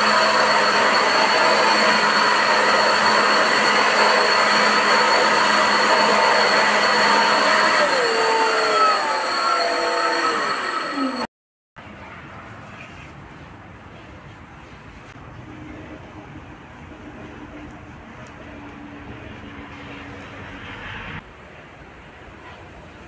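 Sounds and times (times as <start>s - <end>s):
high motor whine: 0.0s - 11.3s.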